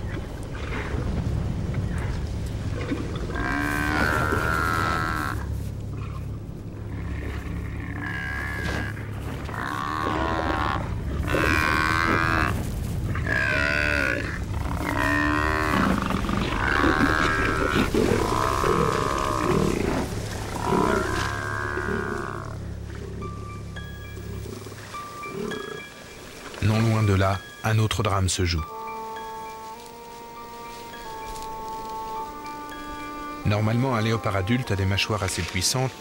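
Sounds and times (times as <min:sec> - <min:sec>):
steady low rumble: 0:00.0 - 0:25.0
buffalo bellowing: 0:02.8 - 0:26.0.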